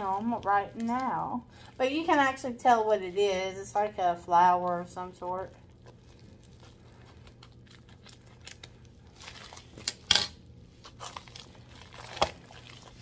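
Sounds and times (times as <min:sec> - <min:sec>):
plastic bag crinkling: 0:05.2 - 0:10.1.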